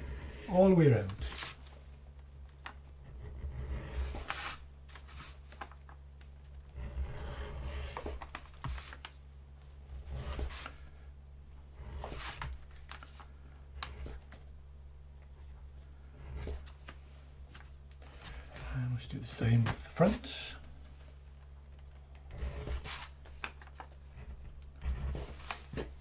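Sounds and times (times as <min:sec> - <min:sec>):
edge beveller scraping leather: 0:03.0 - 0:05.4, 0:06.7 - 0:09.0, 0:11.8 - 0:12.5, 0:22.3 - 0:23.2, 0:24.1 - 0:26.0.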